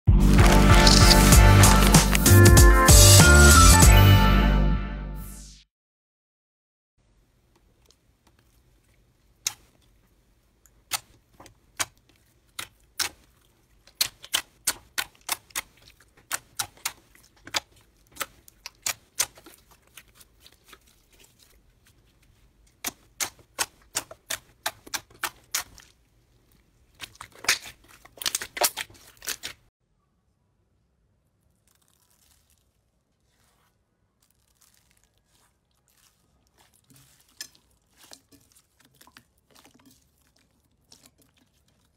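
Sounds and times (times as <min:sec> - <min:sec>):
faint soft crackling: 0:31.2 - 0:41.9.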